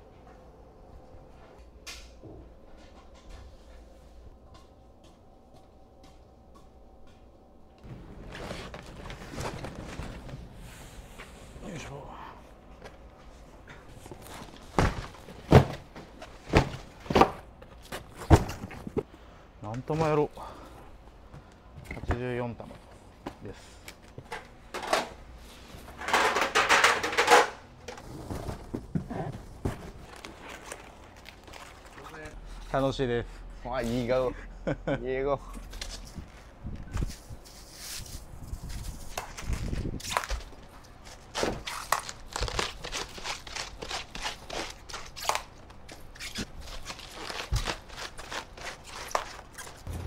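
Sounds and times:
knife cutting cabbage: 41.4s - 45.5s, 46.2s - 49.9s.

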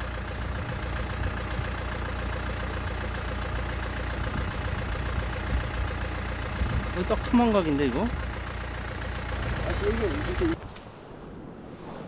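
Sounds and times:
motor idling: 0.0s - 10.6s.

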